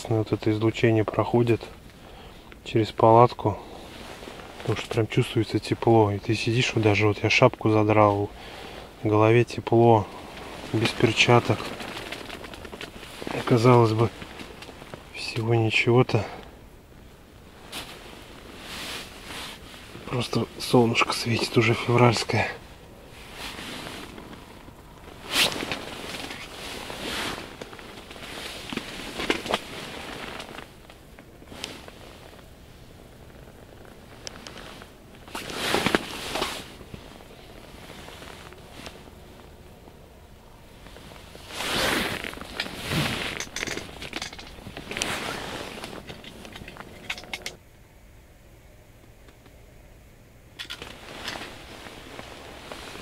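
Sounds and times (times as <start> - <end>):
rustling handling noise: 3.4 - 16.5, 17.4 - 47.6, 50.6 - 53.0
small objects clinking: 43.3 - 44.7.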